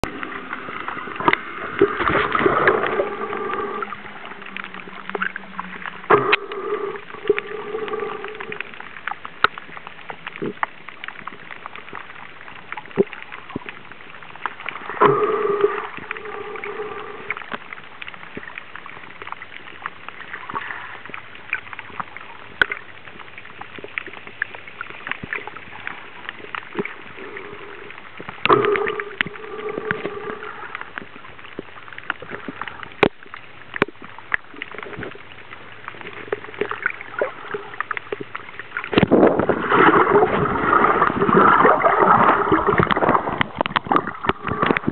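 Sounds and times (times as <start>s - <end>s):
exhaled breath bubbling underwater: 0.0s - 8.9s, 14.6s - 17.7s, 25.7s - 31.2s, 35.8s - 44.9s
steady hiss: 0.1s - 9.5s, 13.8s - 18.8s.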